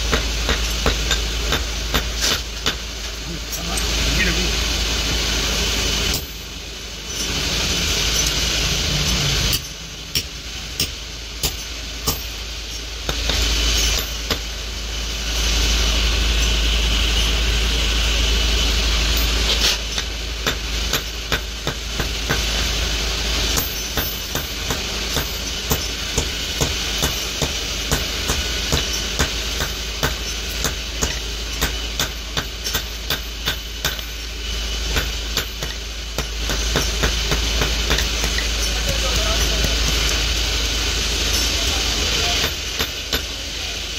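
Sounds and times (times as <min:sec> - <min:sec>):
hammer striking hot steel on anvil: 0:00.0 - 0:04.0, 0:06.1 - 0:06.5, 0:08.0 - 0:14.6, 0:19.2 - 0:22.8, 0:23.4 - 0:40.2, 0:41.2 - 0:43.5
steady rushing hiss: 0:00.0 - 0:43.9.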